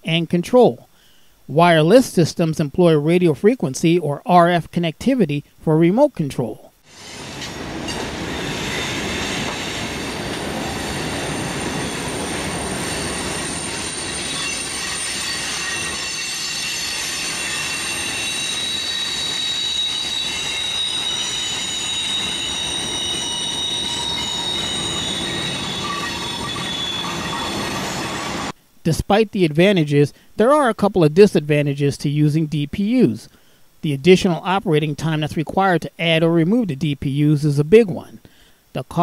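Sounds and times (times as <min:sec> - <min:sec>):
freight train rumbling: 0:06.9 - 0:28.6
train wheels squealing: 0:06.9 - 0:28.6.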